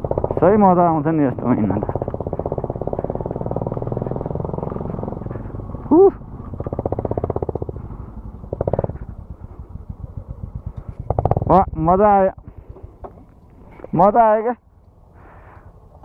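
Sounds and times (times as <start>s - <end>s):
motorcycle engines running: 0.0s - 16.0s
person exclaiming: 5.8s - 6.3s.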